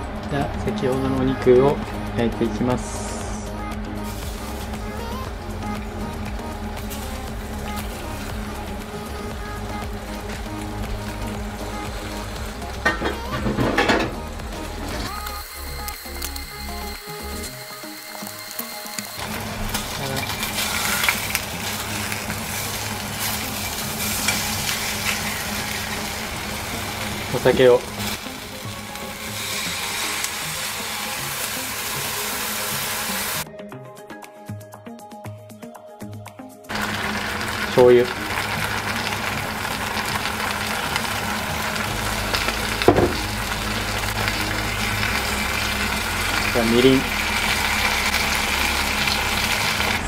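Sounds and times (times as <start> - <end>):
meat sizzling in oil: 4.0 - 33.4, 36.7 - 50.0
chopsticks clicking and scraping: 19.6 - 22.4.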